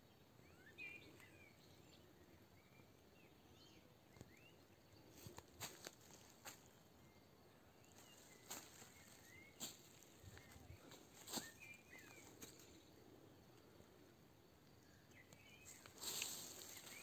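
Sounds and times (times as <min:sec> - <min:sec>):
faint bird chirps: 0:00.0 - 0:17.0
footsteps on dry leaves: 0:05.2 - 0:06.7, 0:07.9 - 0:12.8, 0:15.7 - 0:17.0.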